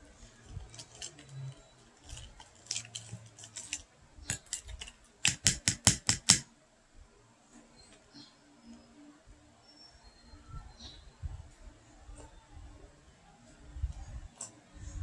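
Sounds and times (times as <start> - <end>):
metal spoon scraping plastic cup: 0.2 - 5.5
loud sharp clicks: 4.3 - 6.5.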